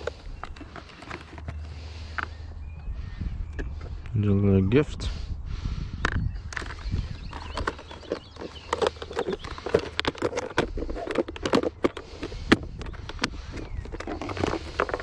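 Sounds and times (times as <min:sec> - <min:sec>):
fishing tackle clicking and knocking: 0:06.0 - 0:15.0.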